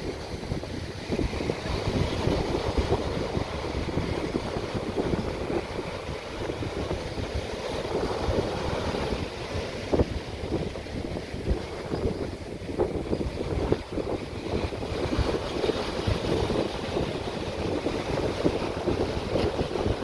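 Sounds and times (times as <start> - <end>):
small waves breaking on beach: 0.0 - 20.0
wind buffeting microphone: 0.0 - 20.0.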